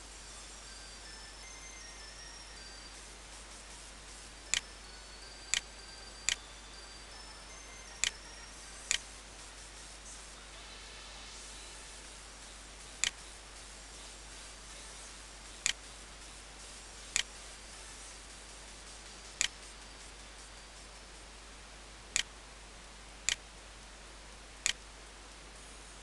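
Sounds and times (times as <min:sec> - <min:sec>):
steady hiss: 0:00.0 - 0:26.0
computer mouse clicks: 0:24.6 - 0:24.8.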